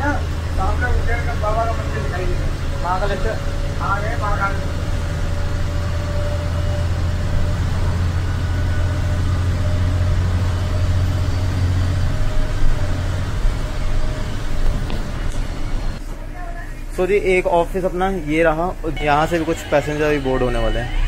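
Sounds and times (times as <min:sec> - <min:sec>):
bus bumps: 0:00.0 - 0:16.6
bus diesel engine drone: 0:00.0 - 0:21.0.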